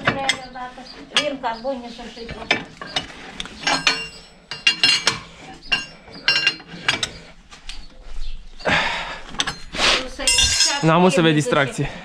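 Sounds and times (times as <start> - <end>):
wrench clanking on metal: 2.3 - 7.2, 9.4 - 10.9.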